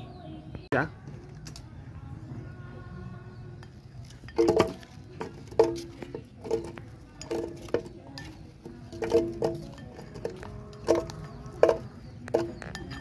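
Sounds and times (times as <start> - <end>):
spoon clinking against ceramic bowl: 3.6 - 13.0.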